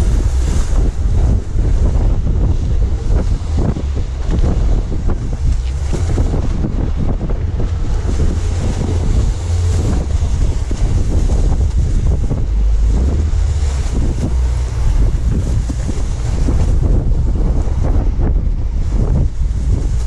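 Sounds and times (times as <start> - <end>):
boat hull slapping water: 0.0 - 20.0
rush of spray and waves: 0.0 - 20.0
wind buffeting microphone: 0.0 - 20.0.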